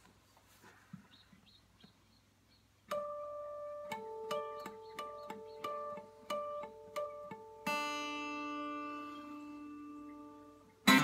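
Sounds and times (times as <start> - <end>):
acoustic guitar playing: 2.9 - 11.0.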